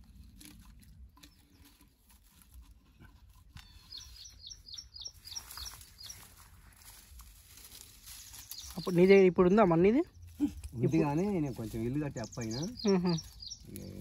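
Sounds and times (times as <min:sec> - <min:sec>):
bird chirping: 0:03.5 - 0:06.5, 0:08.1 - 0:14.0.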